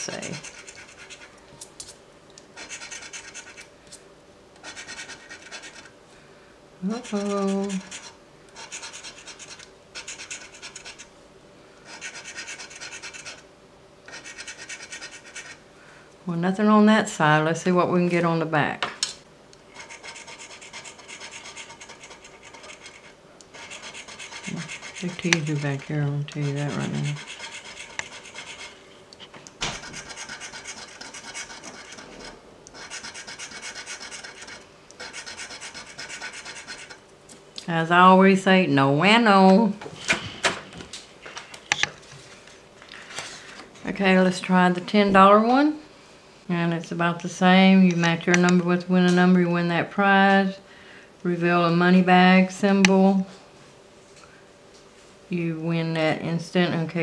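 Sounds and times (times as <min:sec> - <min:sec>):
coin scratching lottery ticket: 0:00.0 - 0:01.3, 0:02.6 - 0:03.7, 0:04.6 - 0:05.9, 0:06.9 - 0:11.1, 0:11.9 - 0:13.4, 0:14.1 - 0:15.6, 0:19.7 - 0:28.8, 0:29.8 - 0:37.0.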